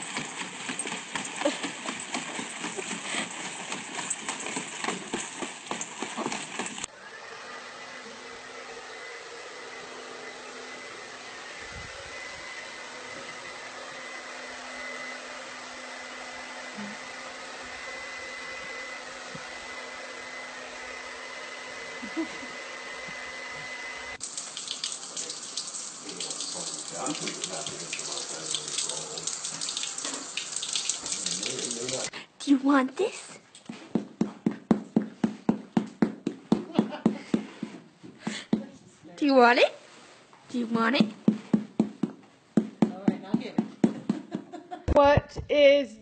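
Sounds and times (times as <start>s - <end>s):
water running and splashing: 0.0s - 6.9s, 24.2s - 32.1s.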